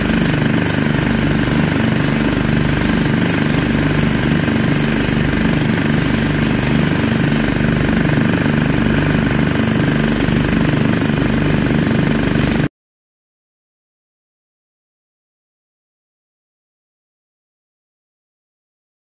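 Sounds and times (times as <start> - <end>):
small gasoline engine running: 0.0 - 12.7.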